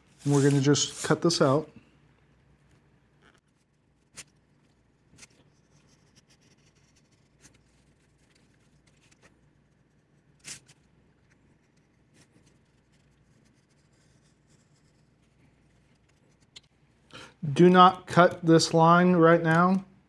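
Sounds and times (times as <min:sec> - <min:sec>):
craft knife cutting paper: 0:00.1 - 0:01.2.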